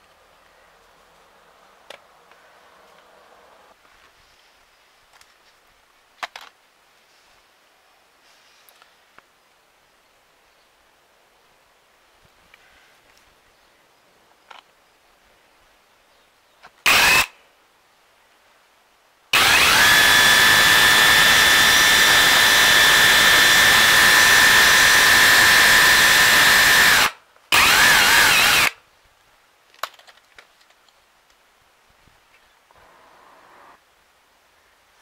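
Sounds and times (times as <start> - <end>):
rotary hammer drilling concrete: 16.9 - 17.3, 19.4 - 28.8.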